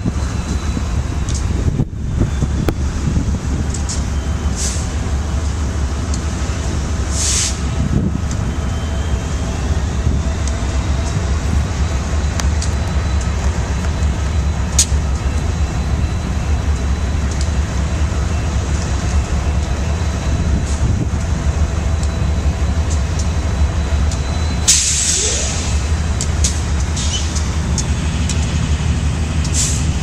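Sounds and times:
diesel locomotive engines rumbling: 0.0 - 30.0
short hisses: 7.1 - 7.6.

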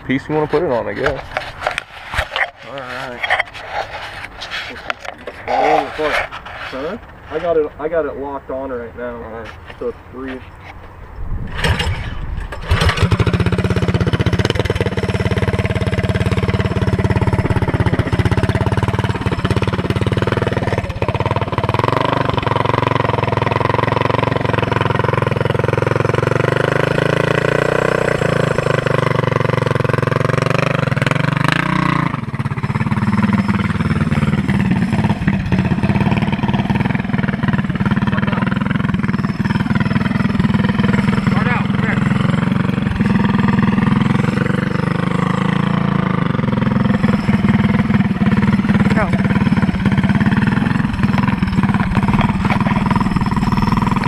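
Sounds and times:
engine pull-started: 11.4 - 30.7
small engine running: 11.6 - 54.0.

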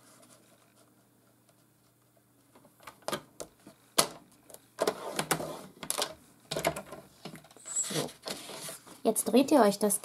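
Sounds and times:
blade scraping over cardstock: 7.6 - 8.8.

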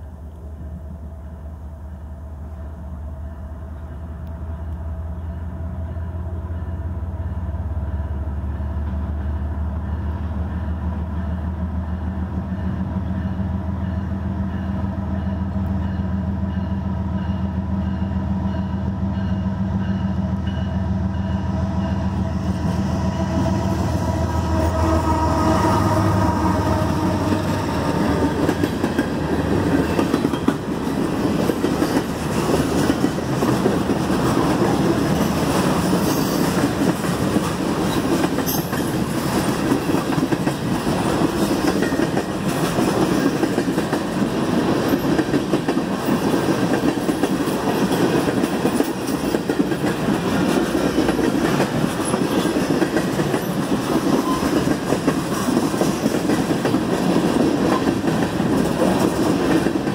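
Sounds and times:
diesel locomotive hum: 0.0 - 59.9
train wheels rushing on rails: 0.0 - 59.9
crossing bell ringing: 12.5 - 22.3, 38.4 - 39.0.

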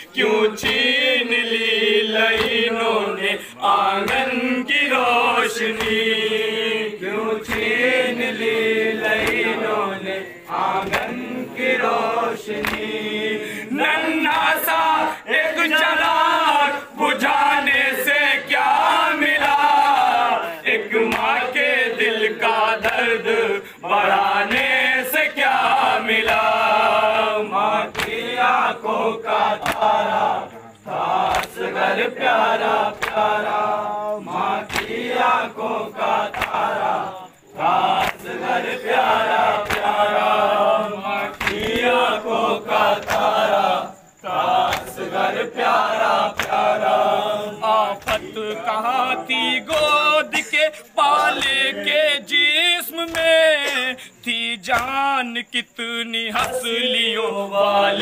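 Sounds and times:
men chanting in chorus: 0.0 - 58.0
hands slapping chests: 0.6 - 1.0, 2.3 - 2.8, 3.7 - 4.4, 5.6 - 6.2, 7.4 - 8.0, 9.0 - 9.7, 10.5 - 13.1, 19.4 - 19.8, 21.0 - 21.4, 26.2 - 26.8, 27.8 - 28.4, 29.5 - 33.7, 34.4 - 35.3, 35.9 - 37.0, 37.6 - 43.6, 44.4 - 47.0, 48.0 - 48.6, 51.3 - 51.7, 54.7 - 55.0, 56.4 - 56.6.

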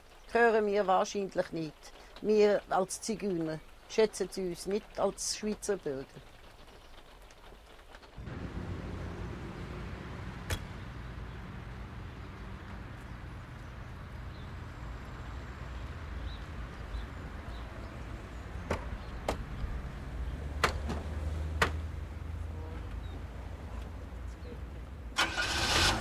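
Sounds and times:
car engine starting: 8.2 - 13.1, 25.2 - 26.0
car doors shutting: 10.4 - 10.8.

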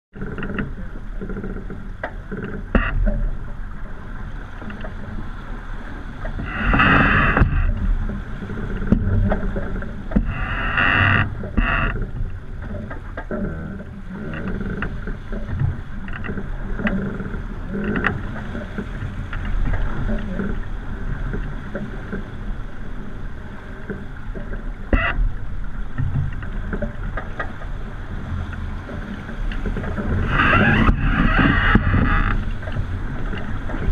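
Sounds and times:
water rushing along hull: 0.1 - 33.9
wind rumble: 0.1 - 33.9
spray and waves rushing: 14.0 - 33.9.

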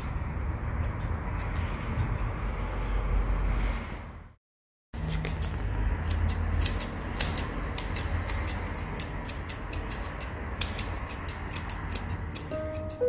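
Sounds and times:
scissors snipping fur: 0.8 - 2.3, 5.3 - 13.0.

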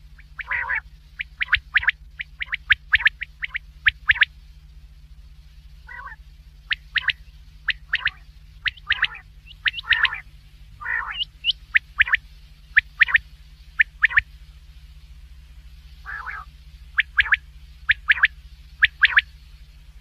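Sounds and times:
quail calling: 0.0 - 4.3, 5.8 - 13.2, 13.8 - 14.3, 16.0 - 19.3
hoarse buzzy bird calls: 0.0 - 20.0
steady low hum: 0.0 - 20.0.

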